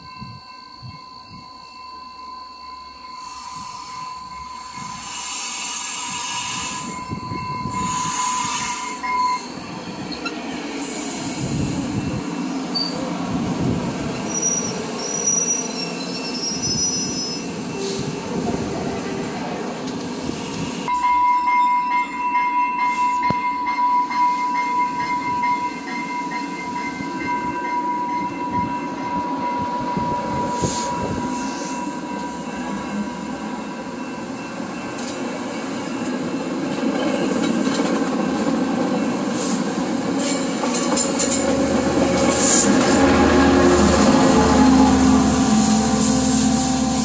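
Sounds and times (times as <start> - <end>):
train rolling on rails: 0.0 - 47.0
high-pitched wheel squeal: 3.1 - 13.1, 14.2 - 18.2.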